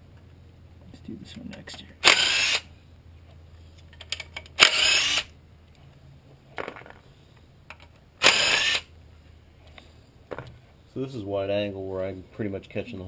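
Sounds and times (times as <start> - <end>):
power tool bursts: 2.0 - 2.7, 4.6 - 5.3, 8.2 - 8.9.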